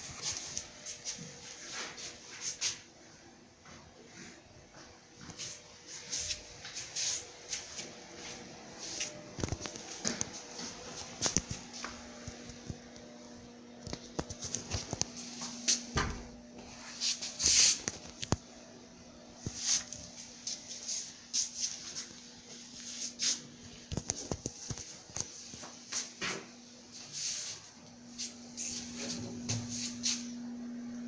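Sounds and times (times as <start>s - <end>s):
footsteps on laminate floor: 4.8s - 12.6s.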